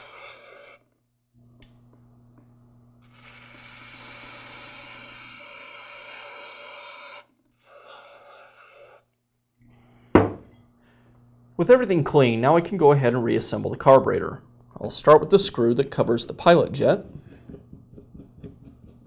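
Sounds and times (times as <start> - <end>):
low steady hum: 0.9 - 5.9, 9.1 - 19.0.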